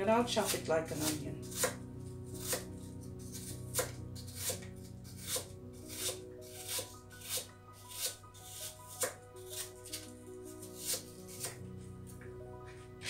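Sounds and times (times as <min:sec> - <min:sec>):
background music: 0:00.0 - 0:13.0
knife chopping on cutting board: 0:00.5 - 0:01.8, 0:02.4 - 0:02.7, 0:03.4 - 0:10.1.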